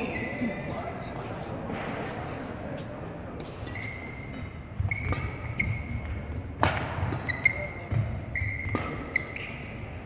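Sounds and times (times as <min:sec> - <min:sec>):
shoes squeaking on wooden floor: 0:03.6 - 0:06.2, 0:07.2 - 0:09.8
racket striking shuttlecock: 0:04.9 - 0:09.6.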